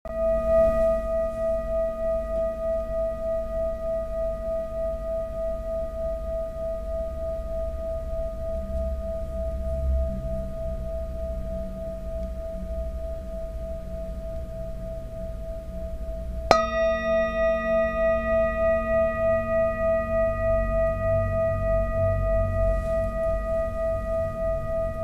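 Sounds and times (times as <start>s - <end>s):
metal singing bowl ringing: 0.1s - 9.8s, 16.2s - 25.0s.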